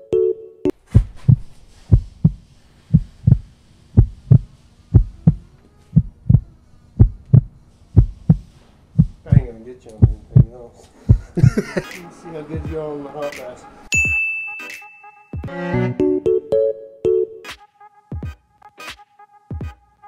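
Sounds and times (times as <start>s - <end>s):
heartbeat thumps: 0.9s - 11.8s, 12.6s - 12.8s
faint steady hum: 1.1s - 12.7s.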